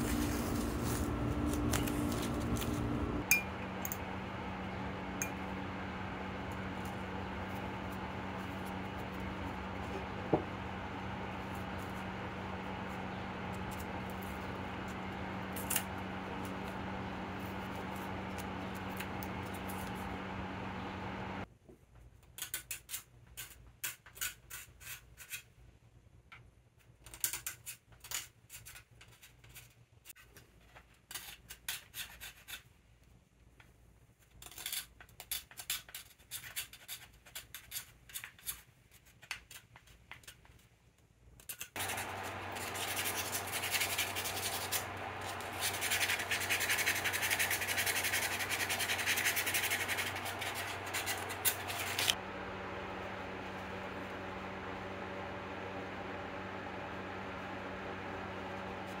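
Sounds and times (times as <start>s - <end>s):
low steady hum: 0.0s - 21.5s, 41.8s - 59.0s
hand sanding wood: 41.8s - 52.2s
metal blade scraping wood: 41.8s - 52.2s.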